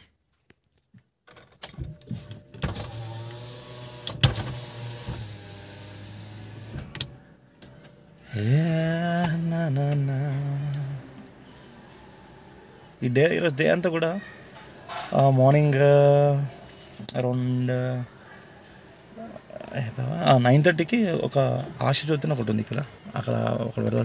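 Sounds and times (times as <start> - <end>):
car power window motor whirring: 2.0 - 7.2.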